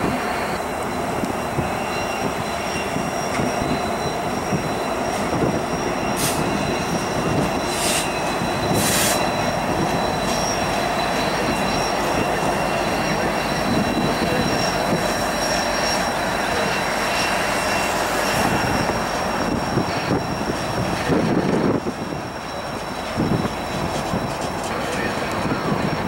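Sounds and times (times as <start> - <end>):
freight train rumbling past: 0.0 - 26.0
high-pitched wheel squeal: 0.0 - 26.0.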